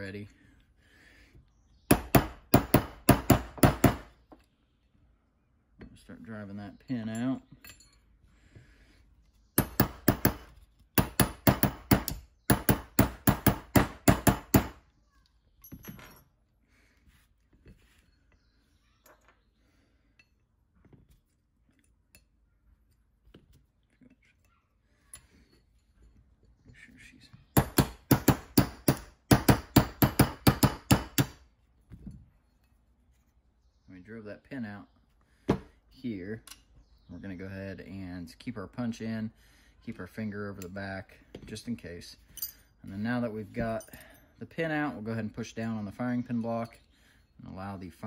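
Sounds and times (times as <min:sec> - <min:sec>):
hammer tapping metal punch: 0:09.6 - 0:14.8.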